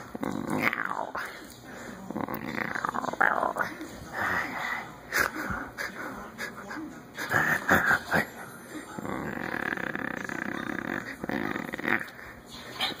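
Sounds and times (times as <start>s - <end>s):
dog growling: 0.0s - 1.4s, 2.1s - 4.4s, 9.0s - 12.4s.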